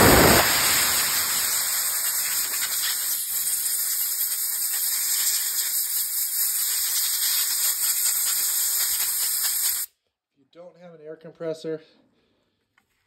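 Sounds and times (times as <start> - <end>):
compressed air hissing: 0.0 - 9.9.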